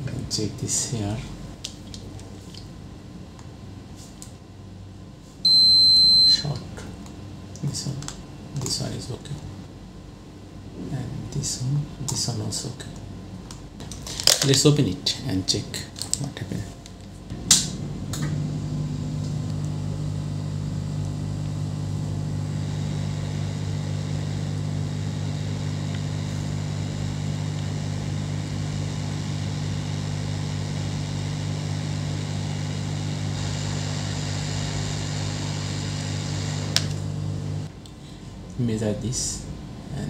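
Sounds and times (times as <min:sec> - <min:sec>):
hot-air station blowing: 0:17.3 - 0:37.7.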